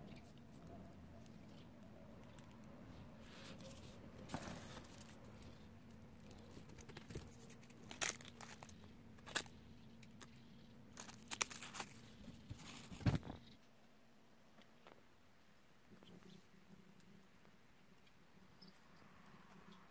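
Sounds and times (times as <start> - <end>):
faint steady hum: 0.0 - 19.9
packing peanuts rustling: 3.2 - 10.3, 10.9 - 13.3.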